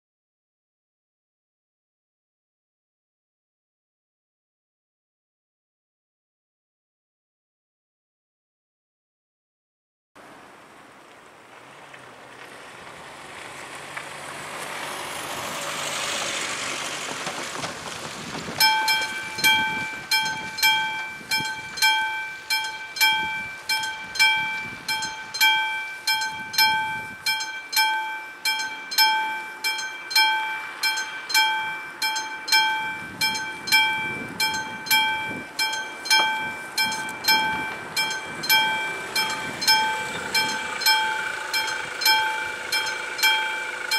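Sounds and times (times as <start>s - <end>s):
broad rushing noise: 14.2s - 43.9s
level crossing bell ringing: 18.6s - 43.9s.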